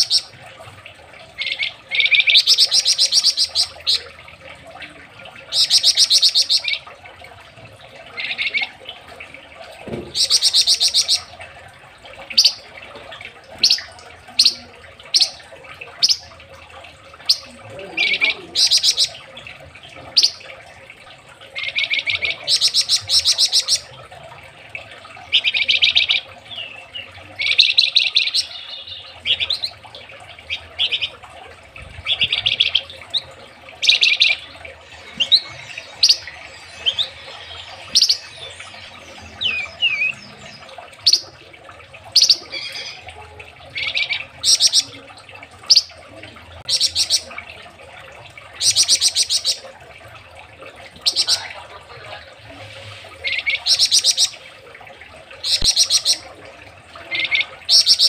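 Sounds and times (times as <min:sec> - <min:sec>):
songbird trilling: 0:33.8 - 0:41.4.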